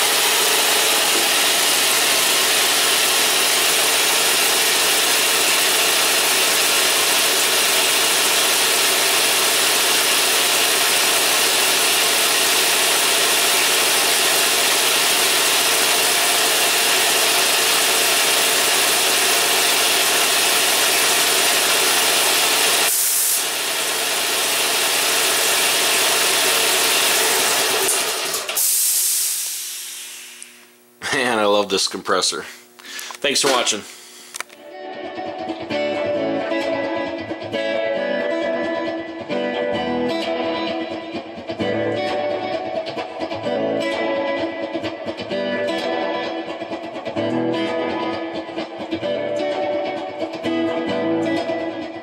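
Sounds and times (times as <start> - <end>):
air compressor running: 0.0 - 31.5, 32.2 - 34.6
steady air hiss: 22.9 - 23.5, 28.6 - 31.0, 32.3 - 34.4.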